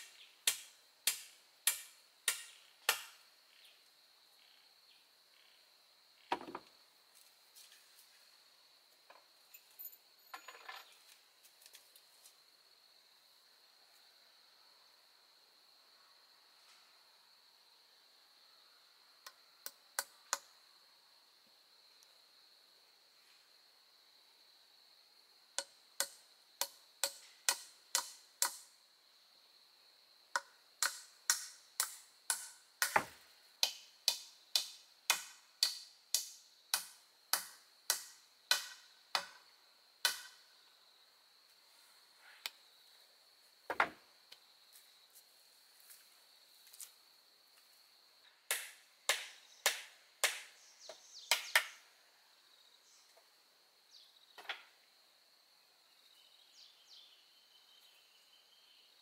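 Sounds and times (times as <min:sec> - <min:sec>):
hand tool striking: 0:00.4 - 0:03.1, 0:30.4 - 0:39.3.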